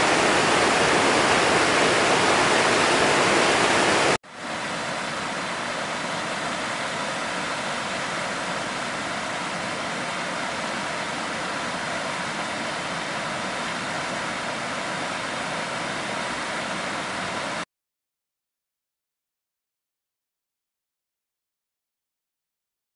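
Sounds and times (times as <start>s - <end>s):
water rushing over spillway: 0.0s - 17.6s.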